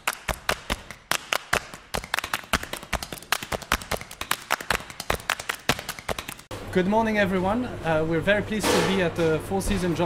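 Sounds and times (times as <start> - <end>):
sharp clicks and taps: 0.0 - 6.5.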